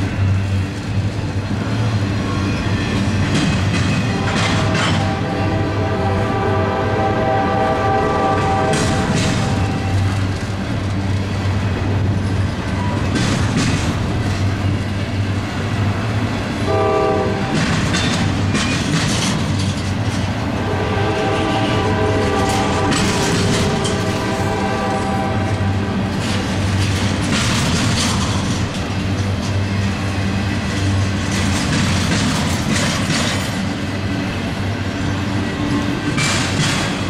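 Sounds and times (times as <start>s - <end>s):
freight train cars rumbling past: 0.0s - 37.0s
wheel clatter on track joints: 2.6s - 5.2s, 8.5s - 15.0s, 17.4s - 20.5s, 22.2s - 24.4s, 26.0s - 33.8s, 35.7s - 37.0s
locomotive air horn: 4.1s - 10.2s, 16.6s - 17.7s, 20.5s - 26.2s.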